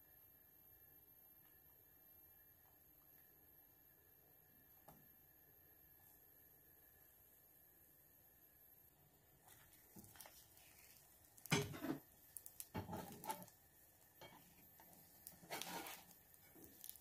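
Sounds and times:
spatula scraping frying pan: 0:10.1 - 0:12.1, 0:12.8 - 0:13.5, 0:14.2 - 0:17.0.

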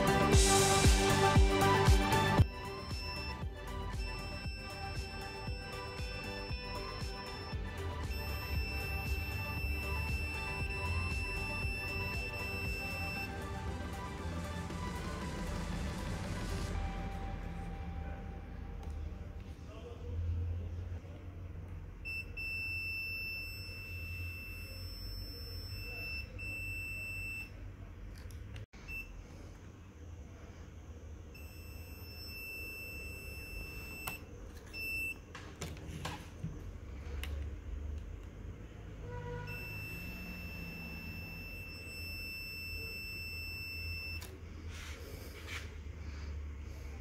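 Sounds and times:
high electronic beep: 0:02.4 - 0:13.7, 0:22.1 - 0:27.5, 0:31.4 - 0:34.2, 0:39.5 - 0:44.2.

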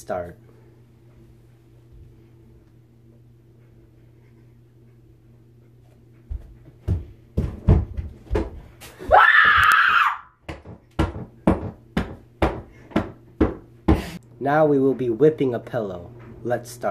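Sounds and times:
loud scream: 0:09.0 - 0:10.4.

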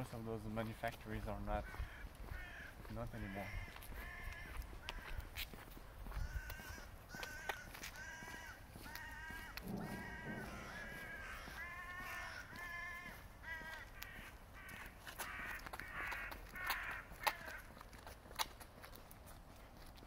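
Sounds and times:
bird calling: 0:06.2 - 0:17.6.

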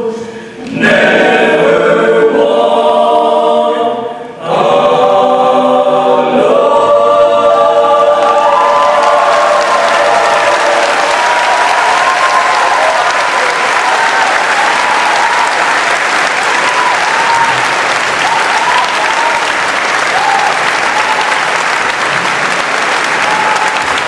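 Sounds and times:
audience applauding: 0:08.2 - 0:24.0.

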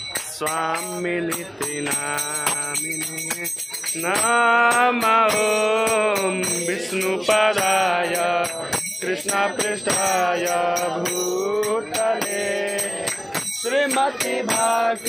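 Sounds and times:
hand claps: 0:00.0 - 0:15.0
hand cymbals: 0:00.0 - 0:15.0
group of voices chanting: 0:05.0 - 0:15.0.

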